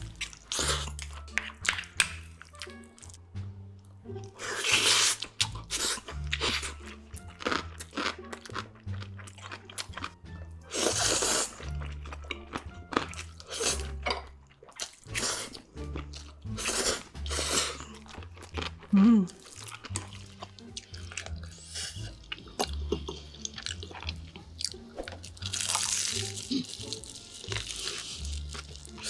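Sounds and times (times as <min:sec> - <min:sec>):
wet chewing and smacking: 0:00.0 - 0:03.2, 0:04.2 - 0:16.8, 0:17.8 - 0:29.0
person slurping noodles: 0:00.5 - 0:01.0, 0:04.4 - 0:06.8, 0:10.7 - 0:11.8, 0:13.4 - 0:14.0, 0:15.1 - 0:15.7, 0:16.5 - 0:18.1.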